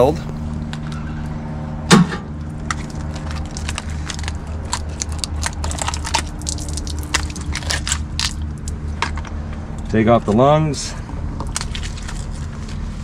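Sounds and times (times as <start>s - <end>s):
steady low hum: 0.0s - 13.0s
crab shell cracking on metal: 2.6s - 9.2s
shell crackling and snapping: 2.6s - 9.4s, 11.4s - 12.5s.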